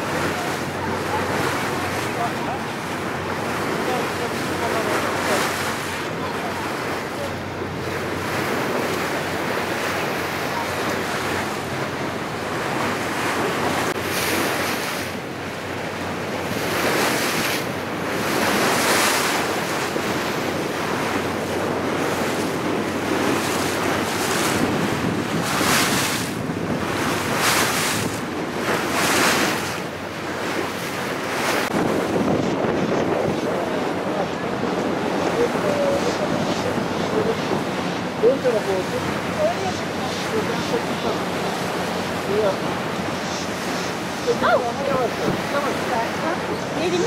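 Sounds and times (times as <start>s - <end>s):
low boat hum: 0.0s - 47.0s
water rushing past boat hull: 0.0s - 47.0s
wind buffeting microphone: 0.0s - 47.0s.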